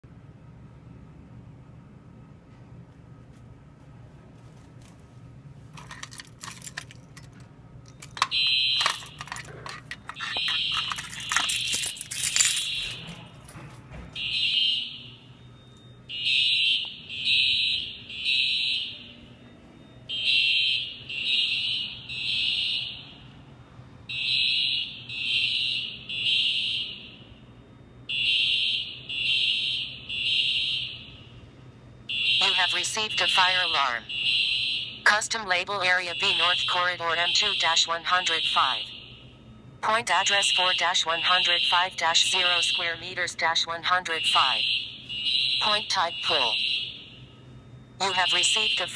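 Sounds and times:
keys jingling: 5.7s - 13.7s
fire alarm horns beeping: 7.8s - 48.9s.

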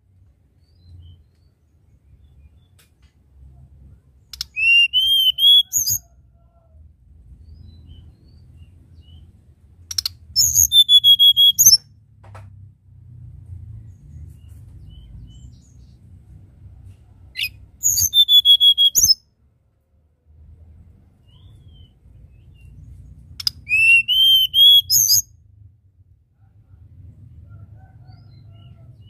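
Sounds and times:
bird singing whistled notes: 4.3s - 6.1s, 9.9s - 11.8s, 17.4s - 19.2s, 21.2s - 25.3s.

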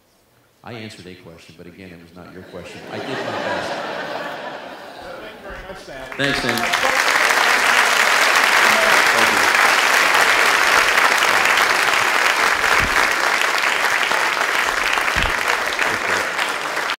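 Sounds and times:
audience applauding: 3.4s - 17.0s.

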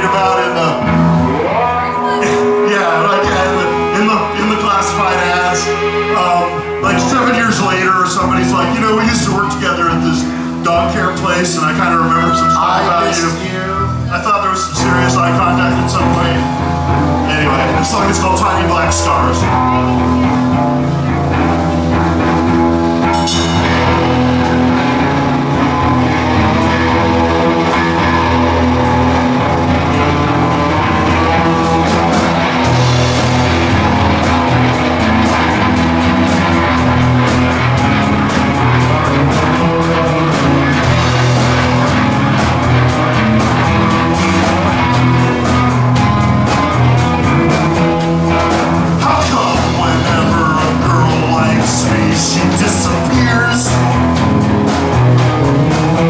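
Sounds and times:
live rock band playing: 0.0s - 56.0s
cymbal beat: 12.0s - 53.0s.

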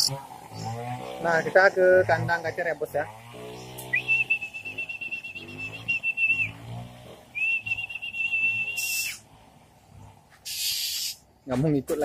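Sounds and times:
person whistling high notes: 4.0s - 6.5s, 7.4s - 9.2s
short hiss: 10.4s - 11.2s.

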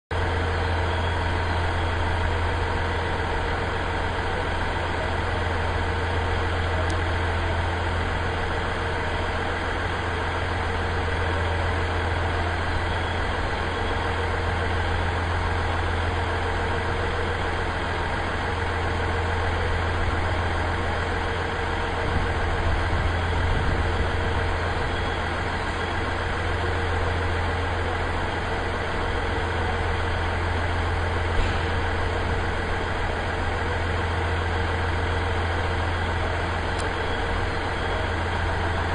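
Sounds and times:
low mechanical hum: 0.1s - 38.9s.

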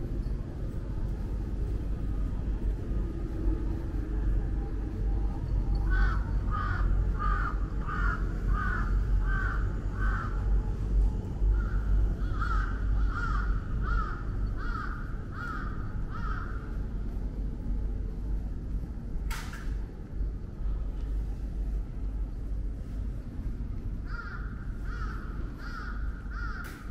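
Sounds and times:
low rumble of street noise: 0.0s - 26.9s
crow cawing: 5.9s - 10.5s, 11.5s - 16.8s, 24.0s - 26.9s.

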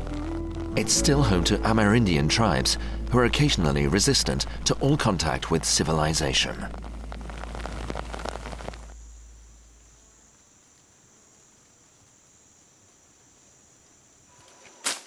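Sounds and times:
deep rushing rumble: 0.0s - 9.8s.

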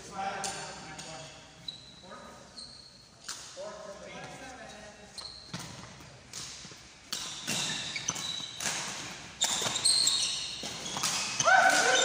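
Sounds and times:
shoes squeaking on wooden floor: 0.9s - 3.3s, 4.3s - 12.0s
racket striking shuttlecock: 5.5s - 12.0s.

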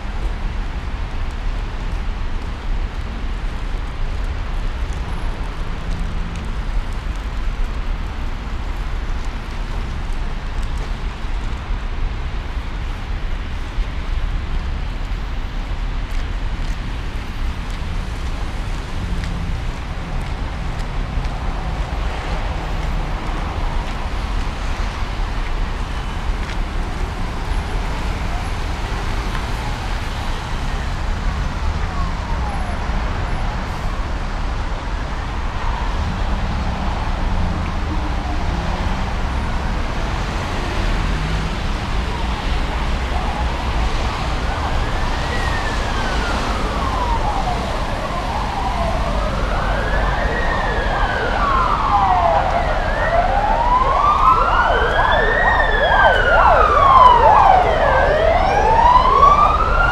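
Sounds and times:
city traffic noise: 0.0s - 59.9s
wailing emergency siren: 16.6s - 59.9s.

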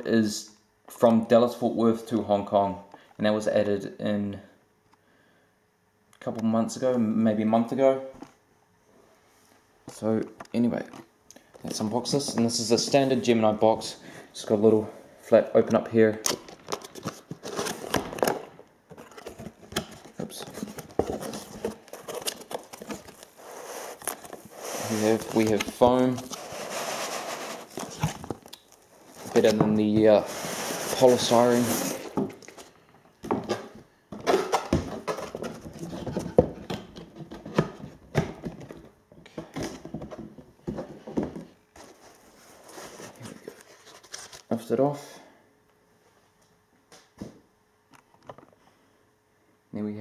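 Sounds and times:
cardboard box being handled: 19.0s - 28.4s.

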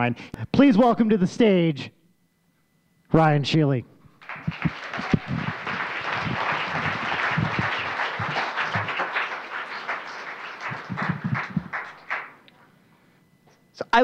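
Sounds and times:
audience applauding: 4.2s - 12.4s.

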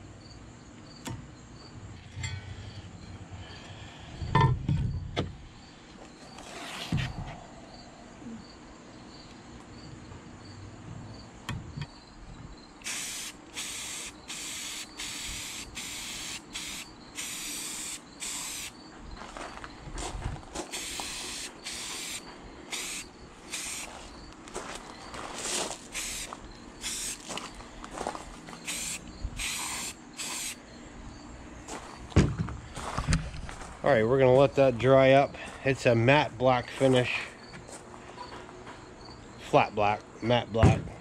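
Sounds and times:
aerosol spray can hissing: 12.8s - 18.7s, 20.7s - 24.0s, 25.9s - 27.3s, 28.6s - 30.6s.

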